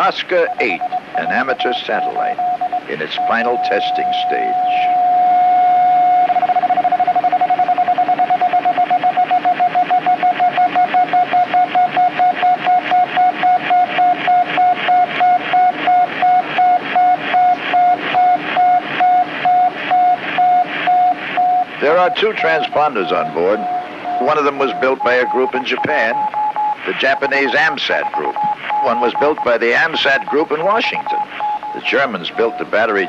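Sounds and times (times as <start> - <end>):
electronic beeps: 0.0 - 33.0.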